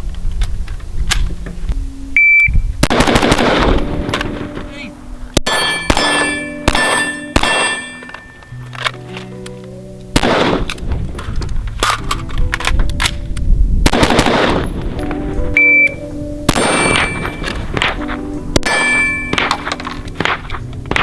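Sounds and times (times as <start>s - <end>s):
music: 0.0s - 21.0s
pistol shots: 2.8s - 4.6s, 5.4s - 8.4s, 10.2s - 10.9s, 13.8s - 14.9s, 16.5s - 21.0s
rifle shots: 2.8s - 4.7s, 5.4s - 8.3s, 10.2s - 10.9s, 13.8s - 15.0s, 16.5s - 21.0s
steel target ringing: 5.4s - 8.6s, 16.5s - 17.8s, 18.6s - 19.6s.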